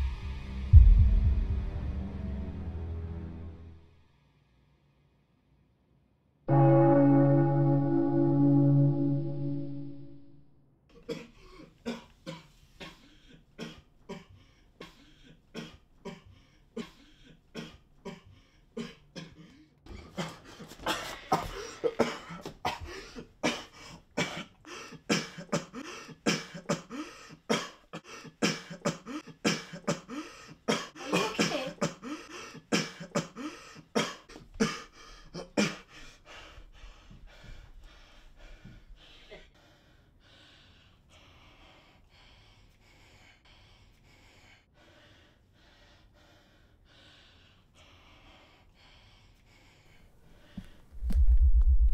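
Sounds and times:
man coughing: 11.0s - 13.0s, 17.6s - 35.9s
man breathing raggedly: 12.9s - 31.1s, 31.9s - 50.9s.

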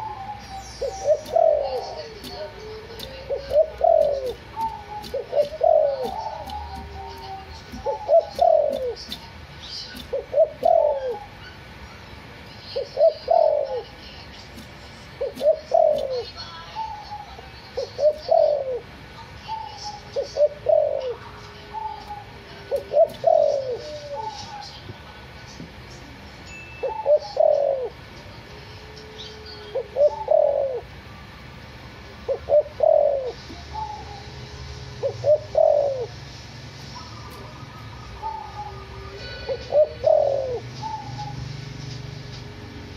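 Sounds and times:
dove cooing: 0.0s - 9.3s, 9.9s - 11.4s, 12.8s - 14.0s, 14.6s - 18.9s, 19.5s - 24.8s, 26.8s - 28.0s, 29.2s - 30.9s, 32.2s - 36.2s, 37.0s - 41.5s.

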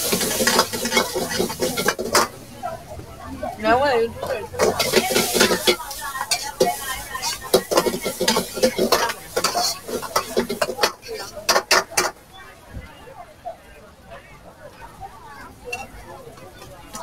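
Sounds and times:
ladle knocking on wok: 0.0s - 2.3s, 4.6s - 12.1s
metal ladle scraping wok: 0.0s - 2.4s, 4.2s - 12.1s
food sizzling: 0.0s - 12.2s.

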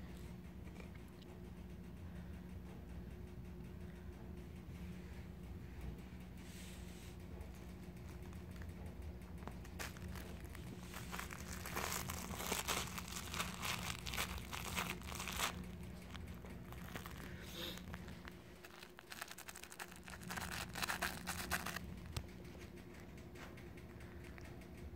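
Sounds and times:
puppy chewing crinkly toy: 7.3s - 24.6s.

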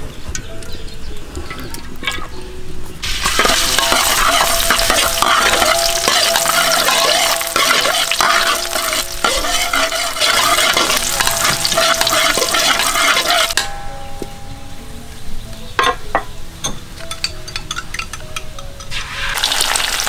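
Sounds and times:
garlic sizzling in hot oil: 3.0s - 13.7s, 18.8s - 20.0s
spatula scraping wok: 3.0s - 13.8s.

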